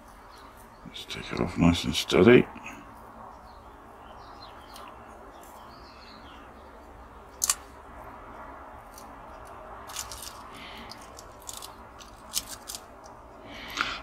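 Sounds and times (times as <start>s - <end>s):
faint birdsong: 0.0s - 14.0s
masking tape peeling: 8.9s - 13.1s.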